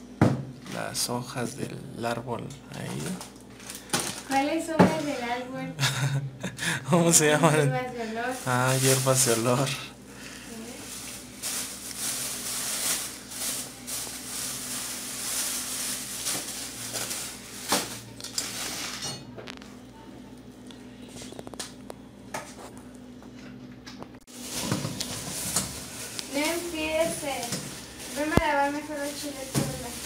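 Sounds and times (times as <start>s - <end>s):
steady low hum: 0.0s - 30.0s
plastic bag rustling: 2.7s - 5.5s, 7.2s - 19.8s, 24.3s - 30.0s.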